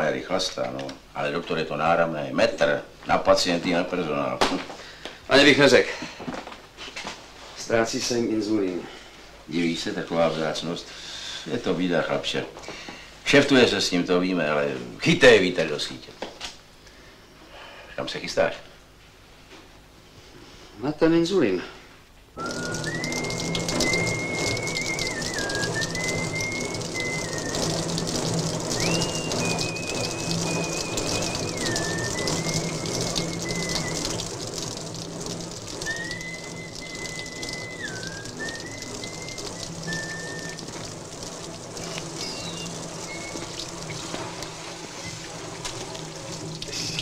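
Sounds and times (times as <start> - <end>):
man whistling a tune: 22.4 - 34.5, 35.8 - 41.0, 41.8 - 43.6
hose spraying water on a vehicle: 22.4 - 47.0.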